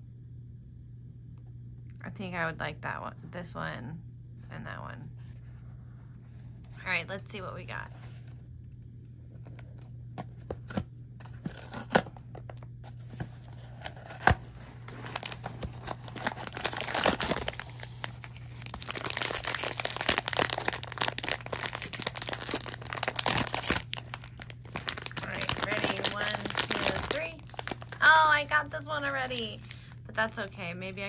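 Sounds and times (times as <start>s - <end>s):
wrapping tearing and crinkling: 9.5s - 30.8s
packaging snapping: 13.6s - 28.3s.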